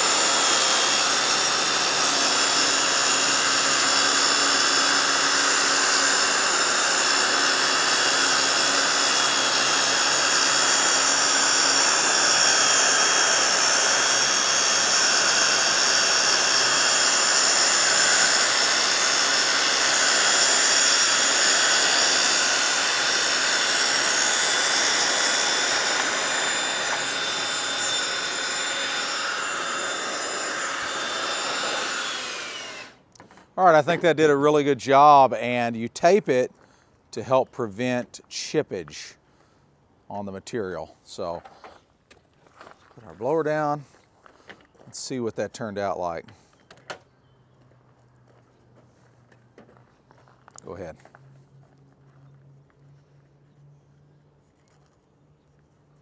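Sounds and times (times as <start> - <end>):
blower running: 0.0 - 35.2
circular saw cutting panel: 0.0 - 35.6.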